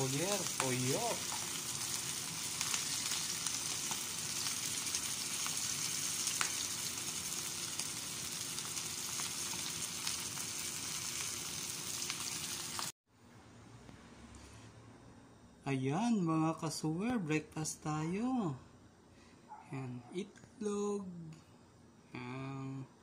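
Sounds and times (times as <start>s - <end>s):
oil popping and crackling: 0.0s - 12.9s
fish frying in hot oil: 0.0s - 13.0s.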